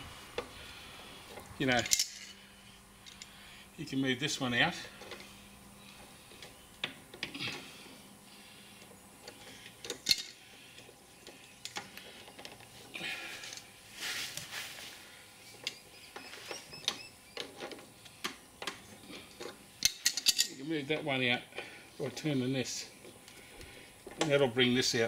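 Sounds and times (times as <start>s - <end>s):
short rustle: 13.3s - 15.1s.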